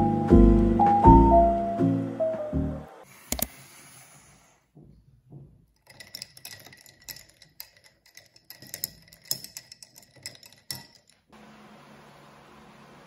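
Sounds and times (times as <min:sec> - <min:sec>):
ice cubes clinking in glass: 0:05.8 - 0:11.3.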